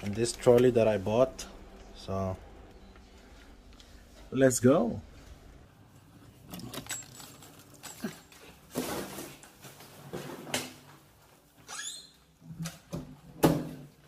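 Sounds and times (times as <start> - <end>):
handling knocks rattles and scrapes: 6.4 - 11.1.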